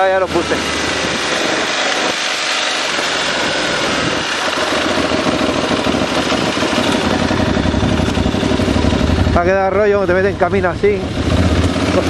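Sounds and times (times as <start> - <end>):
motorcycle engine at low speed: 0.0 - 12.0
wind noise: 0.7 - 9.9.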